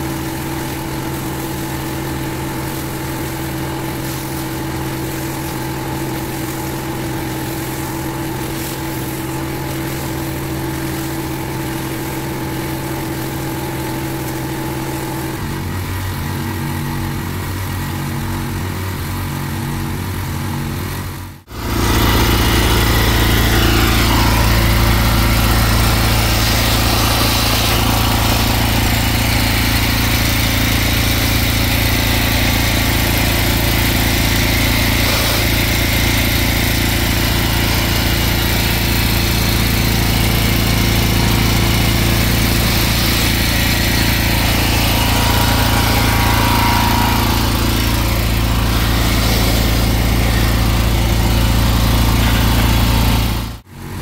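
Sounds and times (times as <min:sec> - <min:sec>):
vacuum sucking up water: 0:21.5 - 0:53.6.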